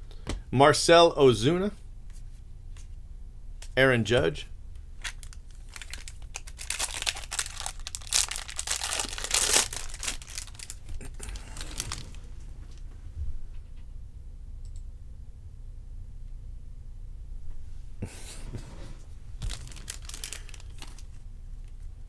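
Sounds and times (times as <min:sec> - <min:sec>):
foil wrappers crinkling and tearing: 0:05.0 - 0:12.3, 0:19.4 - 0:21.2.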